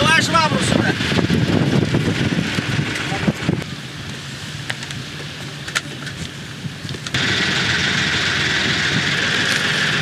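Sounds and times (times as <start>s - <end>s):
steady rushing noise: 0.0s - 5.4s
boat engine running: 7.1s - 10.0s.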